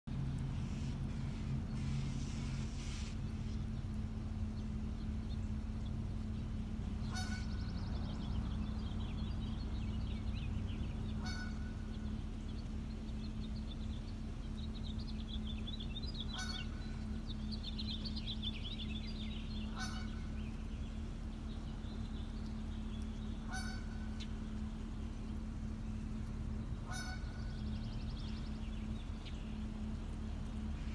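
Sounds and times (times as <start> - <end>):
steady low hum: 0.1 - 30.9
geese honking: 6.8 - 9.4, 11.0 - 12.4, 16.2 - 18.0, 19.4 - 20.8, 23.2 - 24.7, 26.2 - 28.4.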